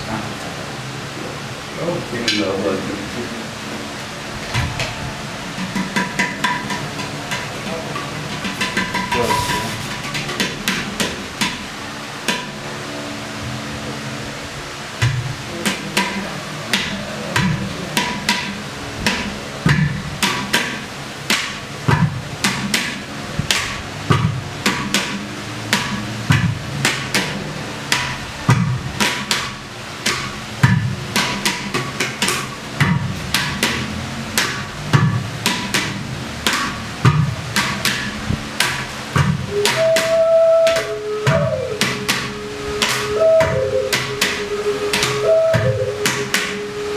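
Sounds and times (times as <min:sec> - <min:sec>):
clay pot drums played by hand: 0:04.4 - 0:12.7, 0:15.0 - 0:46.9.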